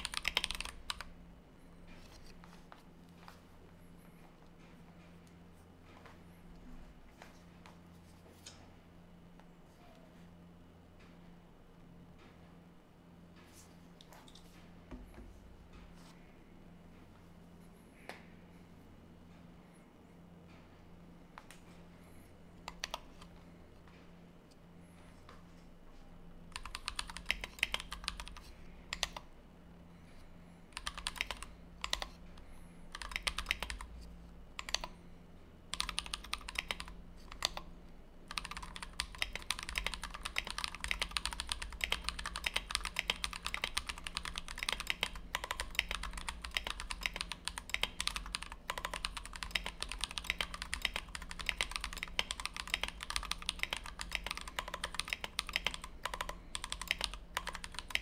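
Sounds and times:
mechanical keyboard typing: 0.0 - 1.1, 22.6 - 23.1, 26.5 - 29.3, 30.8 - 32.2, 32.9 - 33.9, 34.6 - 35.0, 35.7 - 37.7, 38.3 - 58.0.

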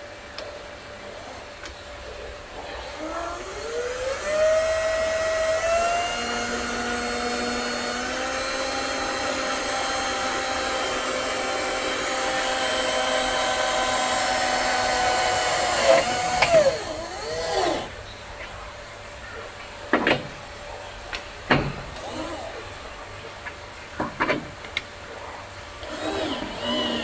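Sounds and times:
cordless drill motor whine: 2.6 - 17.9, 22.0 - 22.6, 25.8 - 27.0
drill clicks: 3.3 - 17.9, 22.0 - 22.5, 25.8 - 27.0.

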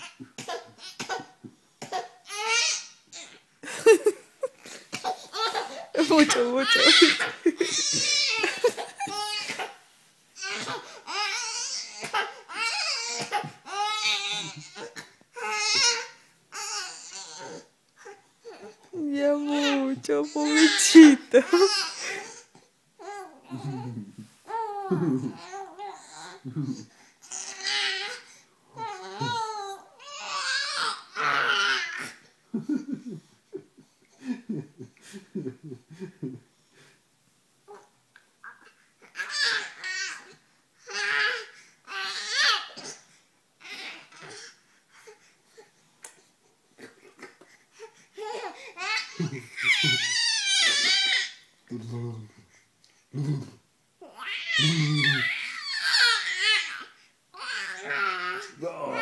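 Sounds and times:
baby laughing: 3.6 - 9.8, 20.3 - 22.2
baby squealing: 5.4 - 8.5.

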